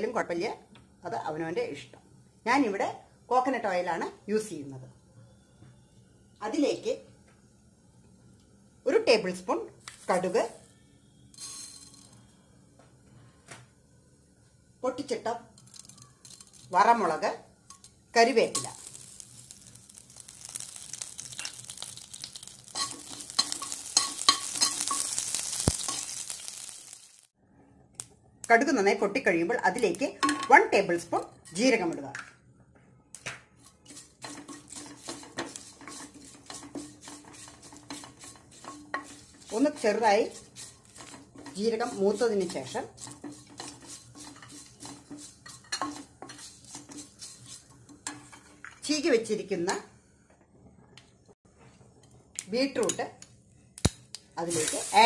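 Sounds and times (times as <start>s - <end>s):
leaves and chillies sizzling: 8.3s - 12.4s, 14.1s - 27.4s, 28.0s - 32.2s, 33.2s - 49.9s, 52.3s - 55.0s
seeds spluttering in hot oil: 15.5s - 27.4s, 33.6s - 48.9s, 53.8s - 55.0s
spatula scraping a metal pot: 22.7s - 25.2s, 33.6s - 48.8s.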